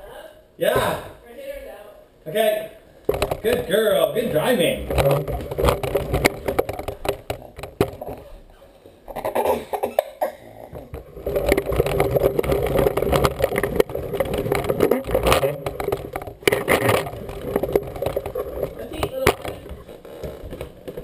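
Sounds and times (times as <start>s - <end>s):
push toy rattling over floor: 4.8s - 8.3s, 10.7s - 21.0s.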